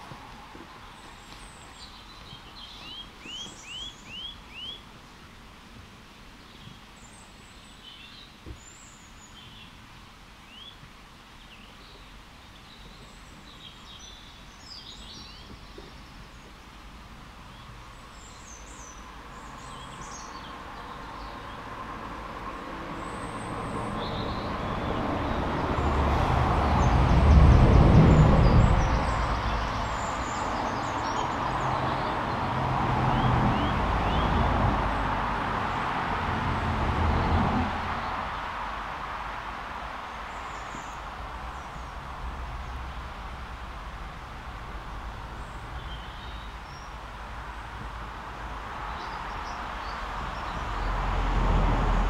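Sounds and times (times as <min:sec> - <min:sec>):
small birds chirping: 0:00.0 - 0:05.4, 0:06.1 - 0:21.9, 0:22.9 - 0:26.0, 0:26.7 - 0:35.0, 0:39.7 - 0:43.7, 0:44.6 - 0:51.0
passing road vehicle: 0:17.5 - 0:52.0.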